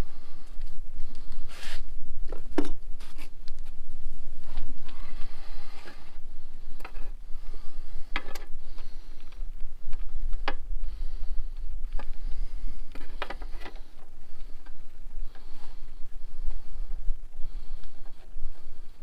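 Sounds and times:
low microphone rumble: 0.0 - 19.0.

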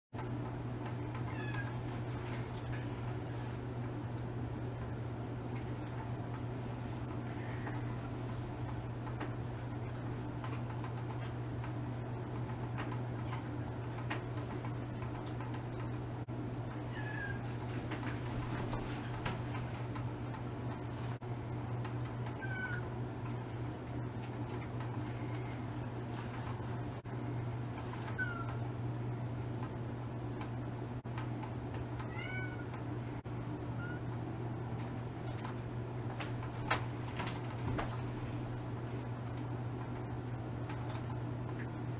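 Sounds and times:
steady low hum: 0.2 - 41.9
cat meowing: 1.2 - 1.8, 16.9 - 17.5, 22.4 - 22.8, 28.2 - 28.6, 32.1 - 32.7.

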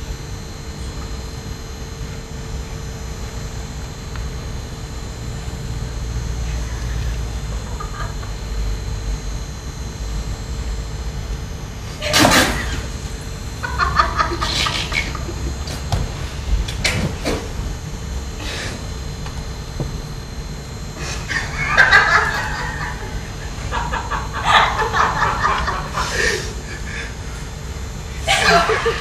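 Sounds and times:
low steady hum: 0.0 - 29.0
stifled laughter: 7.4 - 8.4, 13.6 - 15.9, 21.0 - 27.2, 28.2 - 29.0.

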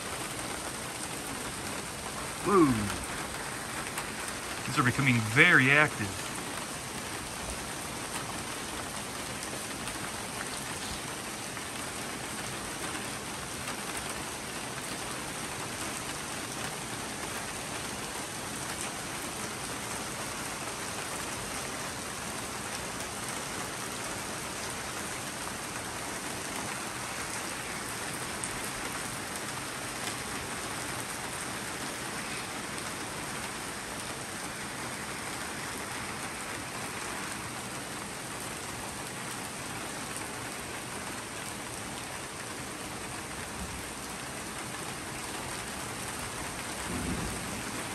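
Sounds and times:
rain falling on surfaces: 0.0 - 47.9.

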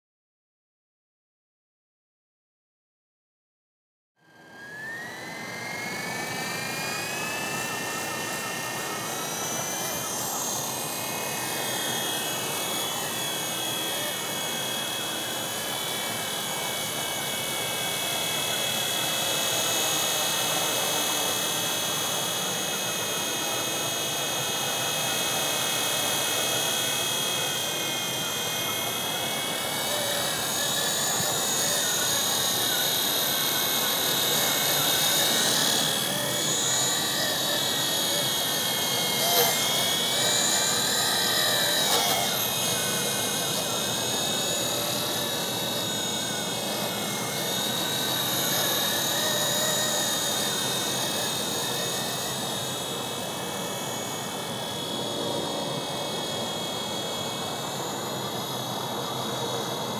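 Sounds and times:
electric motor whine: 4.2 - 59.9
rotor whirr: 4.3 - 59.9.

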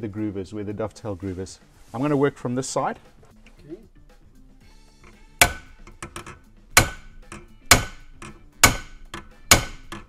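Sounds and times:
hammer striking metal punch: 5.1 - 10.0.

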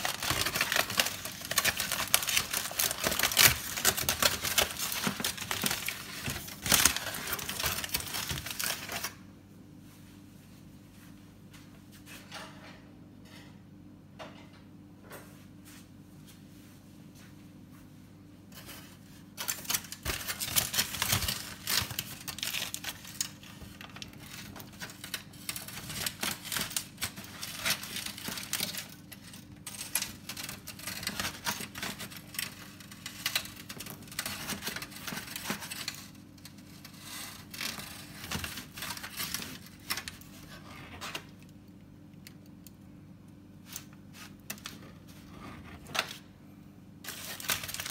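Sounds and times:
aluminium foil crinkling: 0.0 - 9.2, 18.5 - 41.6, 43.6 - 46.3, 47.0 - 47.9.

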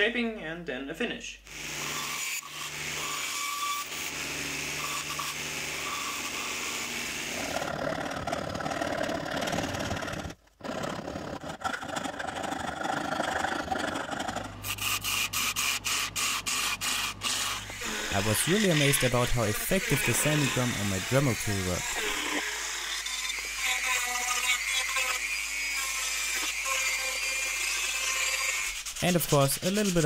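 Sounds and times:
bandsaw cutting hardwood: 1.5 - 30.0
wood lathe running: 1.5 - 30.0
hand file rasping on wood: 7.3 - 30.0.

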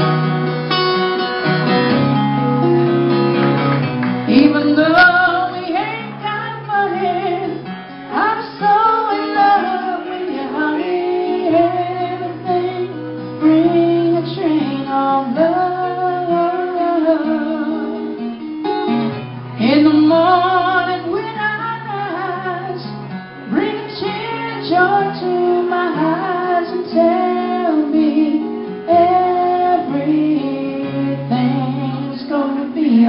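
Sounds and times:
acoustic guitar strumming: 0.0 - 33.0
woman singing: 4.2 - 18.2, 19.6 - 33.0.

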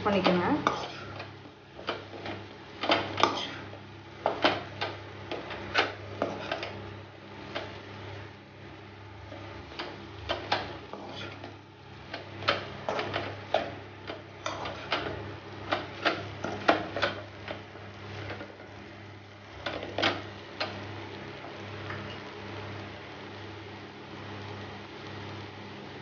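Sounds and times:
steady low hum: 0.0 - 26.0
metal spatula scraping a pan: 0.6 - 1.2.

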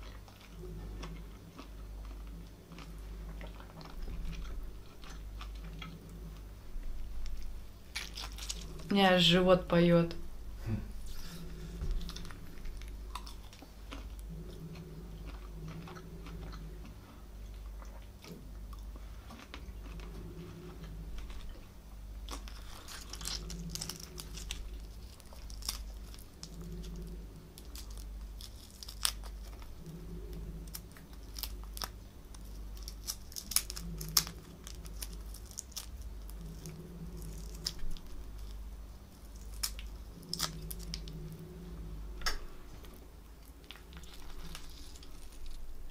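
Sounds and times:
chewing prawns: 0.0 - 9.0, 11.1 - 45.9
prawn shells crackling: 7.1 - 9.0, 22.2 - 45.9.

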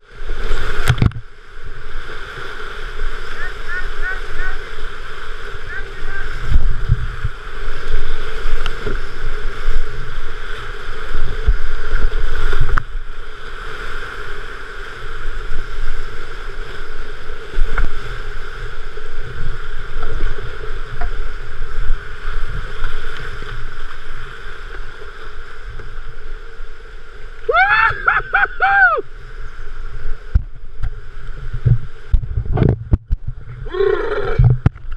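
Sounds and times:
whitewater rushing: 0.0 - 29.3
person shouting: 3.4 - 4.7, 5.6 - 6.4, 27.5 - 29.0.

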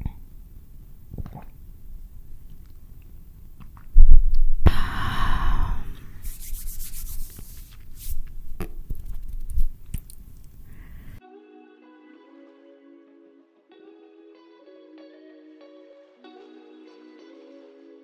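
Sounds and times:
rubbing and brushing: 6.2 - 10.6.

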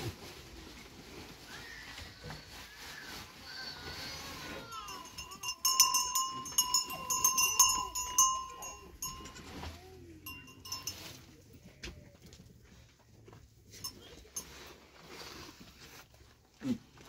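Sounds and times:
goat bell clanking: 4.5 - 11.7, 13.7 - 14.8.

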